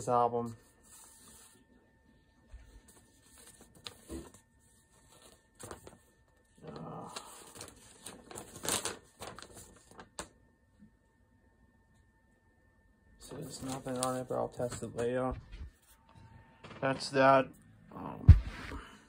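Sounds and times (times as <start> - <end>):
packaging rustling and crinkling: 2.8 - 10.3, 13.3 - 15.6.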